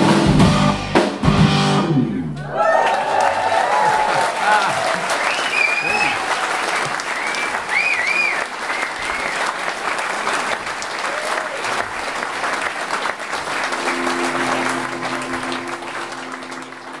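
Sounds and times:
audience applauding: 0:02.4 - 0:17.0
high whistle: 0:05.2 - 0:06.2, 0:07.0 - 0:09.5.

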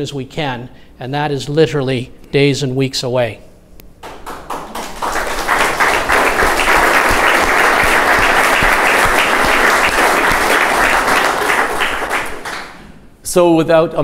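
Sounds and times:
audience applauding: 0:04.0 - 0:12.8.

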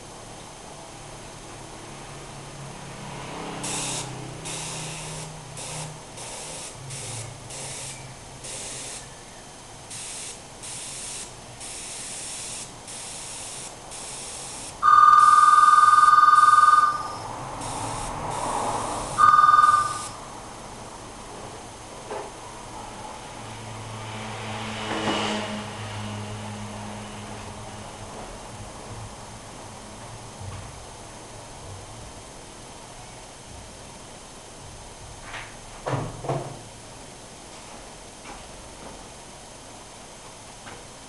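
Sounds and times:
airbrush air hiss bursts: 0:03.6 - 0:09.1, 0:09.9 - 0:14.8, 0:17.1 - 0:19.2
loud steady high tone: 0:03.6 - 0:20.6.

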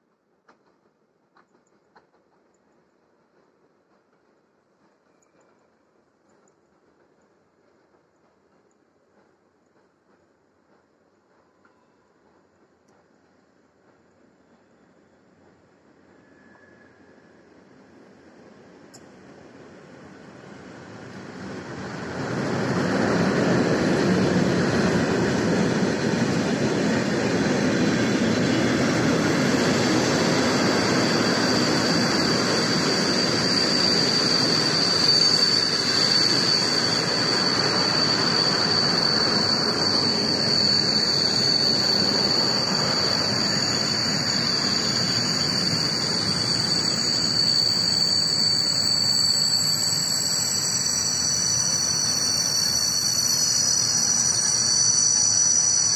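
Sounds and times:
train wheels rumbling on rails: 0:00.0 - 0:55.9
high-pitched squeal: 0:21.7 - 0:55.9.

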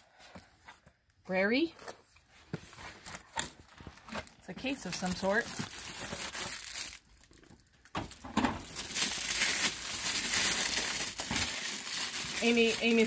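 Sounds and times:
plastic bag crinkling: 0:02.9 - 0:13.0.

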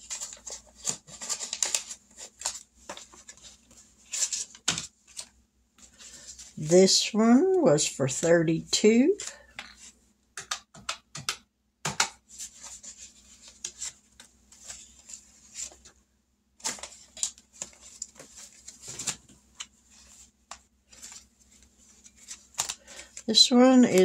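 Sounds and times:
paper envelopes and cash rustling: 0:00.0 - 0:07.0, 0:12.2 - 0:16.0, 0:16.6 - 0:24.0.

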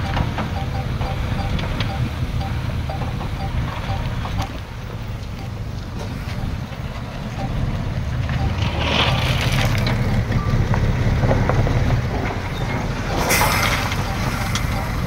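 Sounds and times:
heavy diesel engine running: 0:00.0 - 0:15.0
short hiss: 0:13.2 - 0:14.7.

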